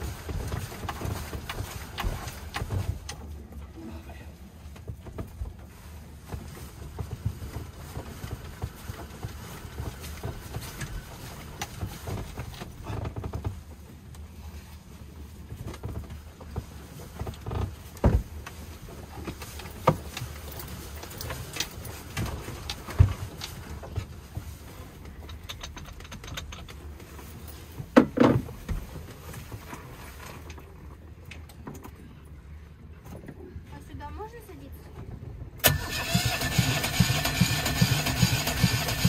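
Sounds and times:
knocks and clicks in boat cabin: 0:06.3 - 0:14.2, 0:15.5 - 0:27.2, 0:27.8 - 0:32.0.

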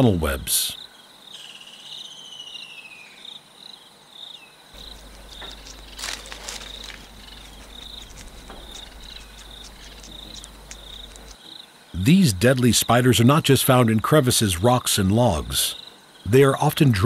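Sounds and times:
crickets chirping: 0:00.0 - 0:17.0
low hum: 0:04.8 - 0:11.4
soft crackling rustles: 0:04.8 - 0:11.4.

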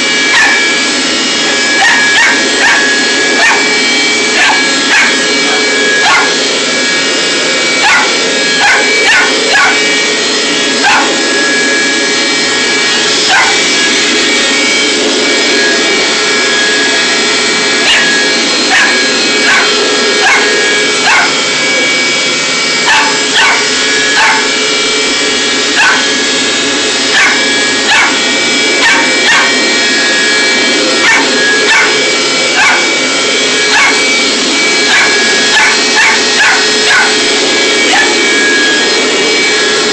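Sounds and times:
carpet cleaner motor drone: 0:00.0 - 0:39.9
puppy barking and yipping: 0:00.3 - 0:16.2, 0:17.0 - 0:21.6, 0:22.7 - 0:24.7, 0:25.6 - 0:39.2.

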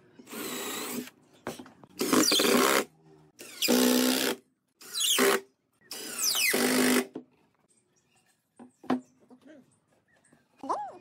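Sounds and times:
cordless drill driving screws: 0:00.2 - 0:01.1.

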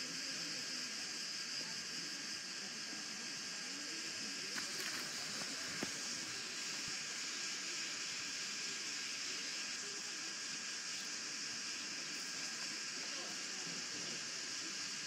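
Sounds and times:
steady hiss: 0:00.0 - 0:15.0
faint clicks: 0:04.4 - 0:06.2.

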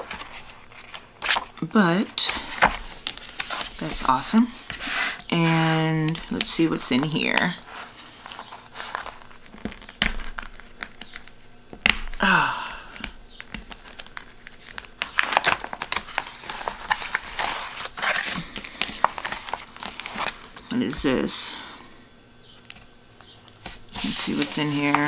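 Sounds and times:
paper cards rustling: 0:00.0 - 0:11.4, 0:13.0 - 0:21.4, 0:22.5 - 0:25.0
plastic pocket crinkling: 0:06.0 - 0:12.2, 0:13.0 - 0:21.0.

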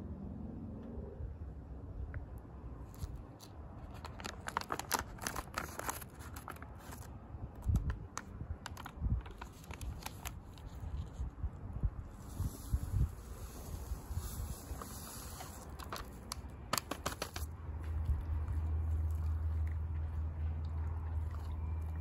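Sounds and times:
plastic packet crinkling: 0:02.9 - 0:10.8, 0:13.3 - 0:17.5.

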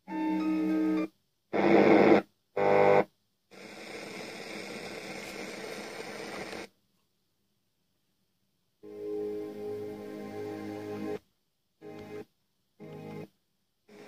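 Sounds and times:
radio static hiss: 0:01.6 - 0:06.7.

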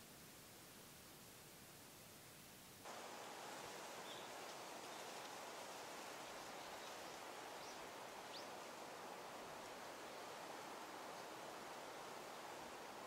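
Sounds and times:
faint steady hiss: 0:00.0 - 0:13.0
faint bird chirps: 0:04.0 - 0:05.1.

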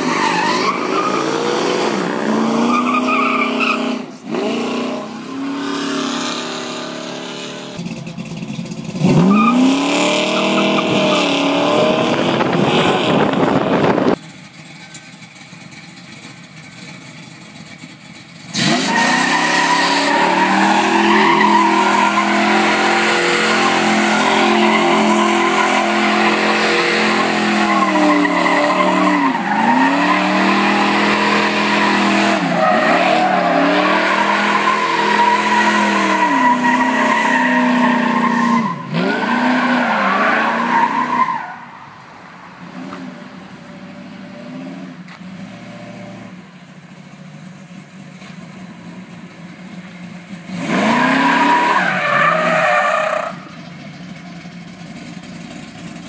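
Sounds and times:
tires squealing: 0:00.0 - 0:07.8, 0:09.0 - 0:15.1, 0:18.5 - 0:45.6, 0:50.5 - 0:56.0
car engine revving: 0:00.0 - 0:14.7, 0:18.4 - 0:41.3, 0:50.3 - 0:56.0.

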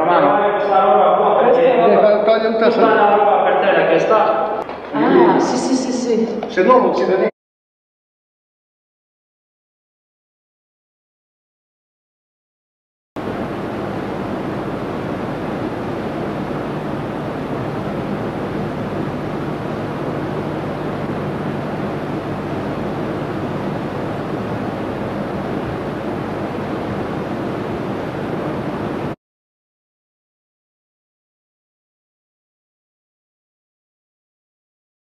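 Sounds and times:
faint low hum: 0:13.2 - 0:29.2
steady rushing noise: 0:13.2 - 0:29.2.

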